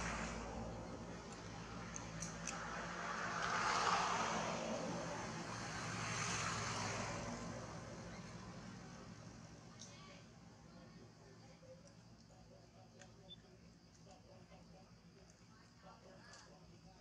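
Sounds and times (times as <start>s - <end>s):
vehicle passing: 0.0s - 10.8s.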